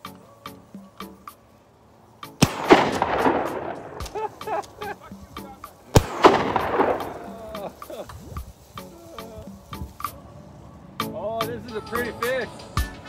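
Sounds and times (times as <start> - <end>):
music with steady beat: 0.0 - 1.5, 2.1 - 10.3, 11.0 - 13.0
shotgun shots with echo: 2.4 - 4.9, 5.9 - 7.8.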